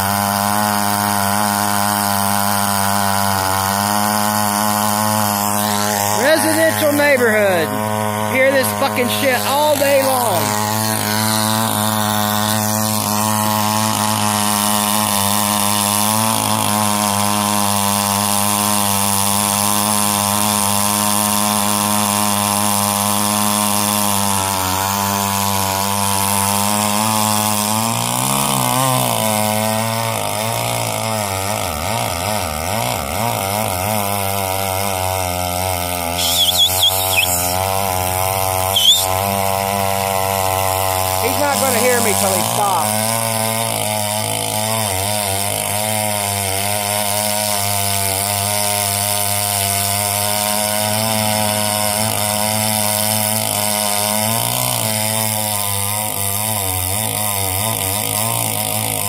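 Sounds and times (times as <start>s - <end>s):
chainsaw cutting logs: 0.0s - 59.0s
high squeaks: 36.2s - 37.6s, 38.7s - 39.1s.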